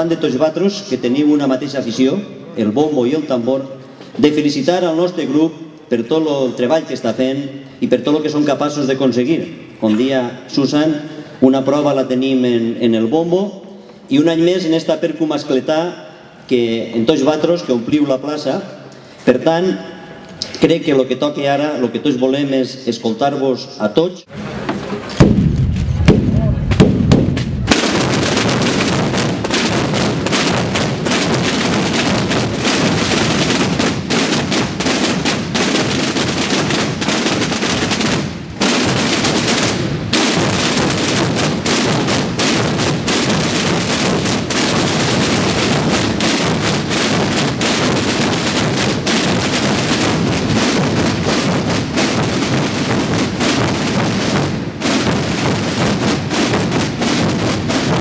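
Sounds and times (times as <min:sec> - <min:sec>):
massed drums playing: 0:25.2 - 0:58.0.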